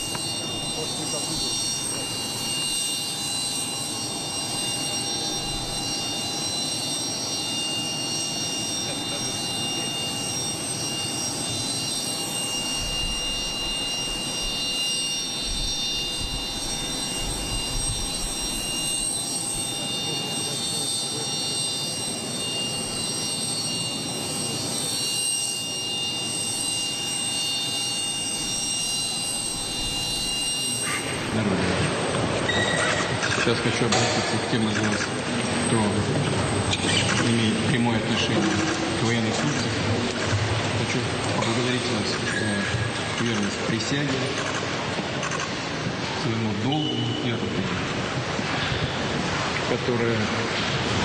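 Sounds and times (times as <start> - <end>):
jet engine high whine: 0.0 - 51.0.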